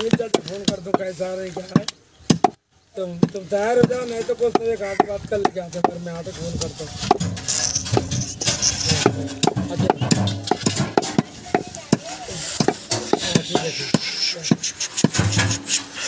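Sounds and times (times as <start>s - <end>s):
cleaver chopping meat on wood: 0.0s - 2.6s, 12.6s - 15.2s.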